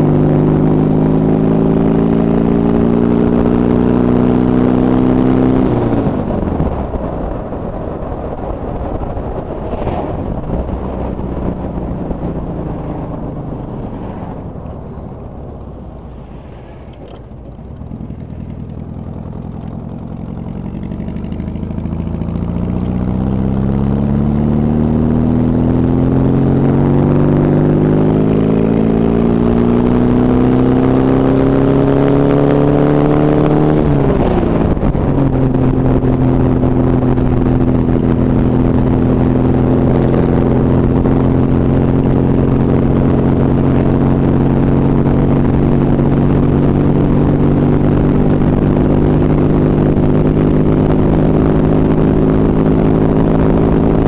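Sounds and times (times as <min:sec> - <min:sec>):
trike engine revving: 0:00.0 - 0:54.0.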